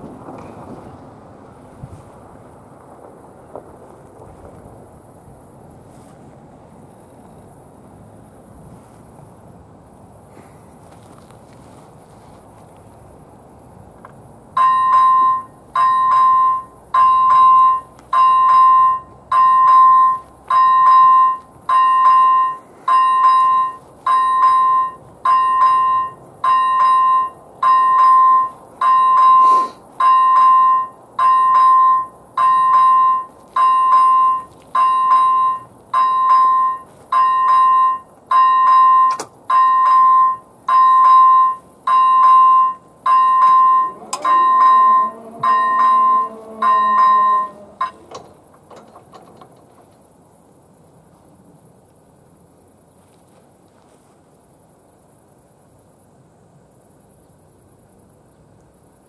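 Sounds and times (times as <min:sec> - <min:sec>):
level crossing warning bell ringing: 0:14.6 - 0:49.3
barrier motor humming: 0:42.5 - 0:49.5.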